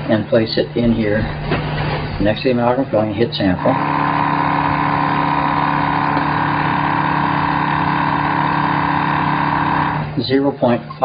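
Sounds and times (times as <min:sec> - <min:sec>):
pump motor hum with whine: 0:03.0 - 0:11.0.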